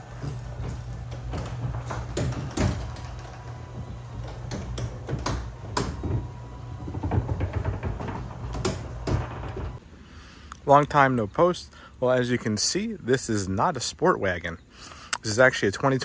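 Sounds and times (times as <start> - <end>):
door panels clicking and rattling: 0.0 - 9.8
garage door motor drone: 0.0 - 9.8.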